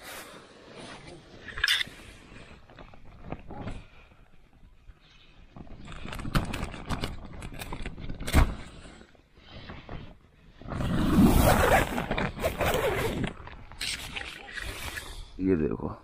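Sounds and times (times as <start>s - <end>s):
tent fabric rustling: 9.5s - 15.0s.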